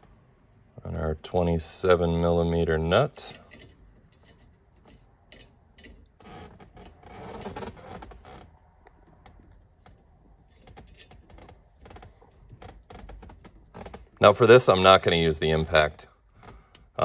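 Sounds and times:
small metal clicks and scraping: 3.2 - 8.2, 8.8 - 14.0.

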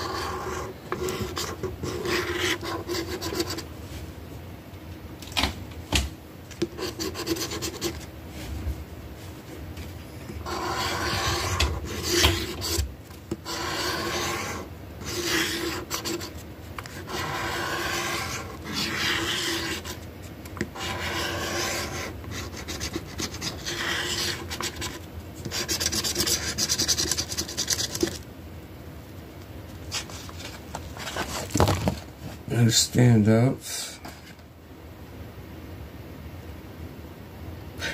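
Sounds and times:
scratch card being scraped: 0.0 - 3.7, 6.6 - 8.0, 10.3 - 20.0, 20.6 - 28.2.

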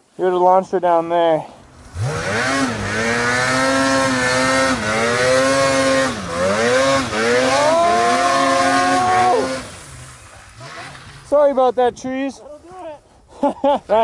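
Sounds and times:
snowmobile engine at high revs: 1.8 - 11.4.

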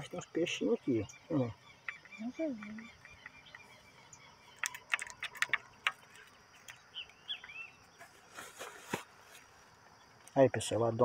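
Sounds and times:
bird chirps: 0.0 - 8.9
insect hum: 0.0 - 11.0
sharp clicks: 4.6 - 7.6.

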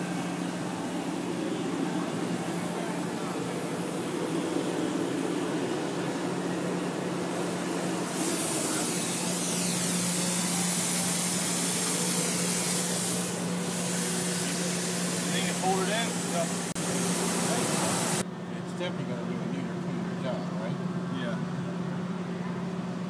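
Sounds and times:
torch hissing: 0.0 - 18.2
generator humming: 0.0 - 23.0.

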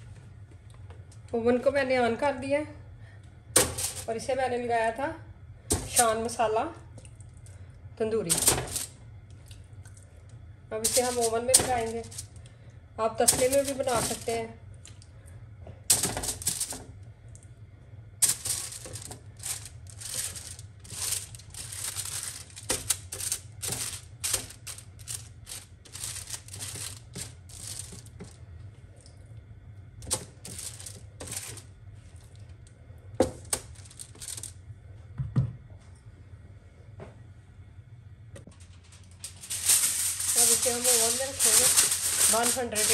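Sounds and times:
low steady hum: 0.0 - 42.9
aluminium foil crinkling: 3.6 - 4.1, 8.3 - 9.0, 10.8 - 12.4, 13.2 - 14.5, 15.9 - 16.9, 18.2 - 28.4, 30.0 - 32.5, 33.4 - 34.6, 38.5 - 42.9.

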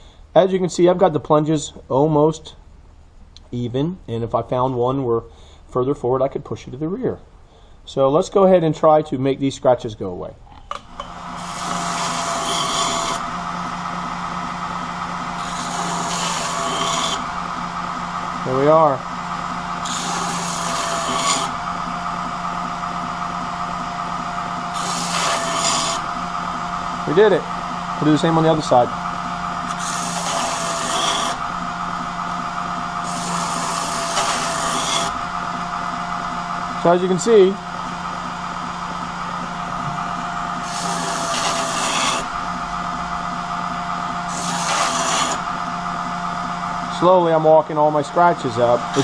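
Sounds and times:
belt grinder motor hum: 10.7 - 47.5, 48.1 - 49.0
knife blade grinding on belt: 15.4 - 17.3.

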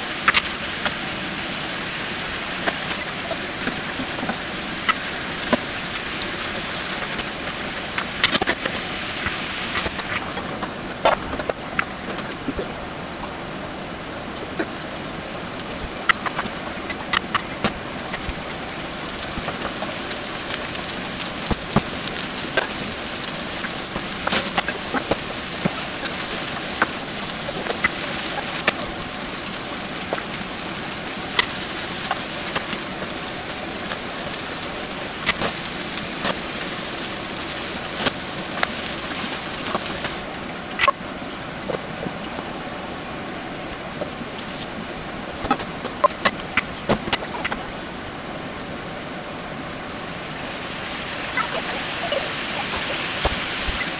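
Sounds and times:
meat sizzling in a frying pan: 18.1 - 40.4.

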